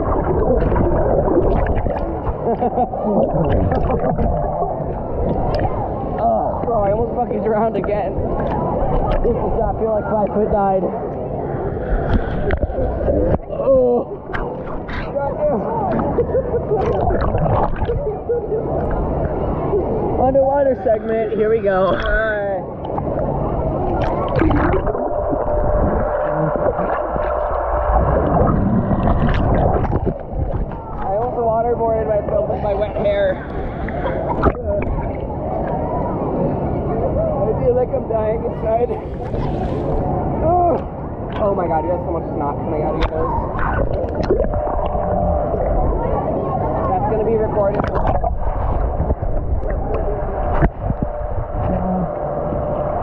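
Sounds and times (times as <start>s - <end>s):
water sloshing and churning: 0.0s - 53.0s.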